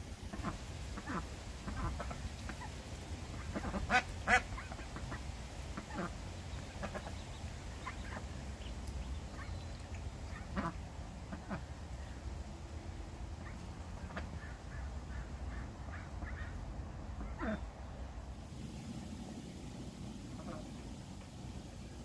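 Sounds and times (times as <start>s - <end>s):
steady low rumble: 0.0s - 22.0s
ducks quacking: 0.2s - 8.7s, 9.3s - 12.2s, 13.4s - 18.1s, 20.3s - 20.9s.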